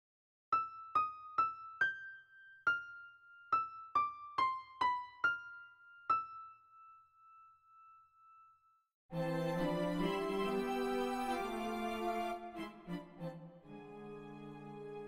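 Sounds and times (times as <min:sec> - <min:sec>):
high keyboard notes melody: 0:09.1 - 0:15.0.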